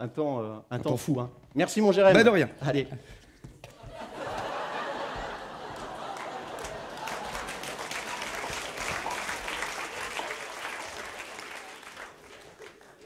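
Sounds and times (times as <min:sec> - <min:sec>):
audience applauding: 0:03.9 - 0:13.0.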